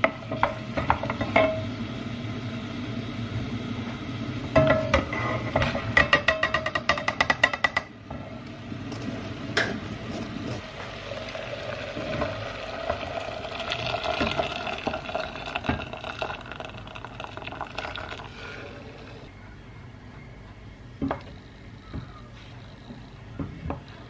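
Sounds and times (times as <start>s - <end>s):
water pouring into pot: 10.8s - 19.3s.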